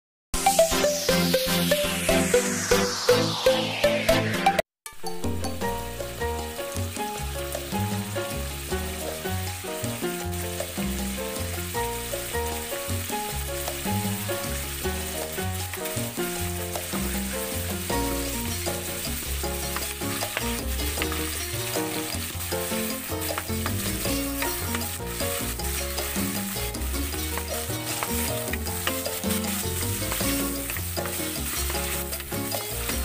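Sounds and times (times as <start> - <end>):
background music: 0.4 - 33.0
fat sizzling in oil: 5.0 - 33.0
wooden spatula scraping wok: 8.8 - 33.0.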